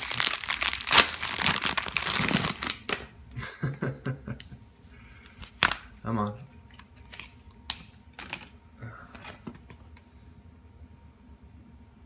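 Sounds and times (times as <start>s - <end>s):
plastic packaging crinkling and tearing: 0.0s - 3.1s.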